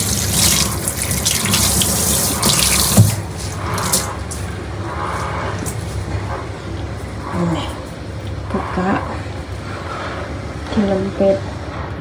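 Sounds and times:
tap water running into sink: 0.0s - 4.1s.

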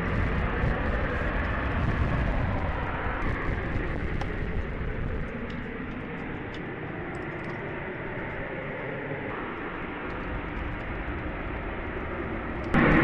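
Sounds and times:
jet aircraft rumble: 0.0s - 13.0s.

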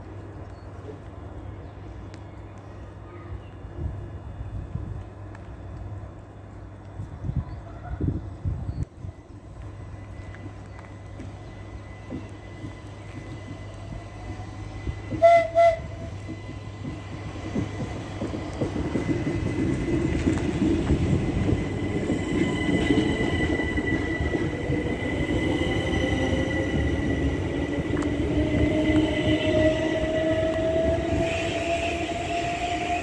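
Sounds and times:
train rumble and motor whine: 0.0s - 33.0s
train horn blasts: 15.1s - 16.2s.

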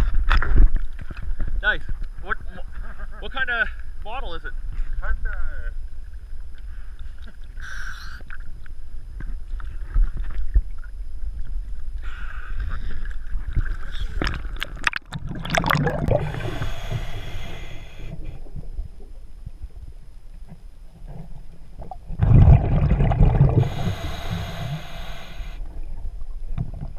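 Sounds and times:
low rumble of water on housing: 18.1s - 24.7s.

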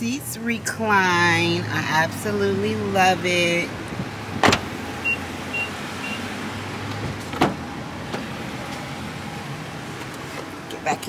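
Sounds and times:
outdoor background noise: 0.0s - 11.0s
car door thunk: 4.0s - 4.8s, 6.9s - 8.3s.

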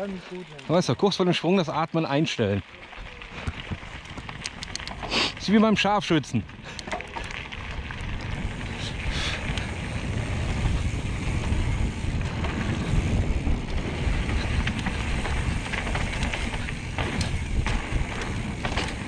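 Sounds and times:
bike tyres rumbling on dirt: 0.0s - 19.0s
wind buffeting microphone: 3.0s - 5.5s, 6.4s - 19.0s
sharp clicks or rattles: 3.5s - 5.2s, 13.6s - 19.0s.

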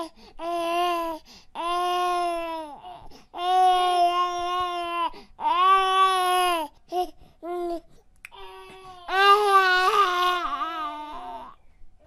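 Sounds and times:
baby crying: 0.0s - 11.6s.

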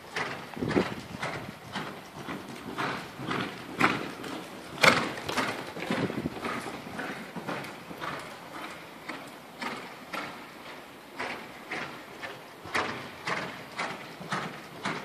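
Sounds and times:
horse hooves cantering on sand: 0.0s - 15.0s.

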